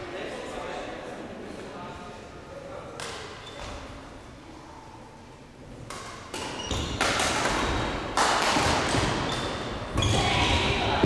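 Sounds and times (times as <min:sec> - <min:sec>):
racket striking shuttlecock: 0:05.8 - 0:09.8.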